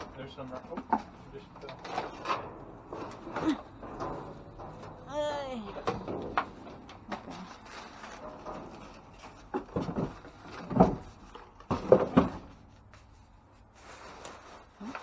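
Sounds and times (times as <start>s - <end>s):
plastic bags rustling: 6.5s - 11.7s.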